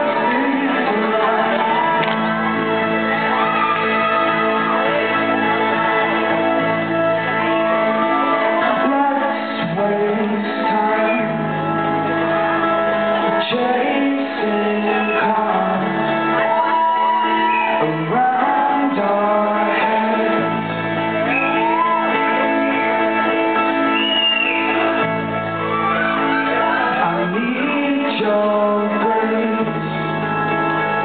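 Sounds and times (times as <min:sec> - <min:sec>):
man singing into a microphone: 0:00.0 - 0:02.3, 0:08.4 - 0:12.0, 0:13.2 - 0:16.5, 0:17.6 - 0:20.8, 0:26.5 - 0:30.4
acoustic guitar playing: 0:00.0 - 0:31.0.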